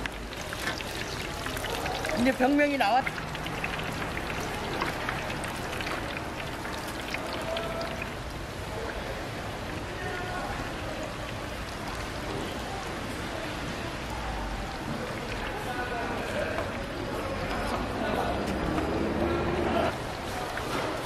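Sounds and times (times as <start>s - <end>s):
oil sizzling and crackling: 0.0s - 13.2s
faint voices: 0.4s - 21.0s.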